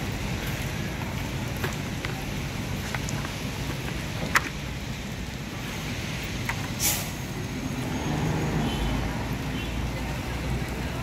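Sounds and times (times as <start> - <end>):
bus diesel engine rumble: 0.0 - 11.0
air hiss: 6.8 - 7.3.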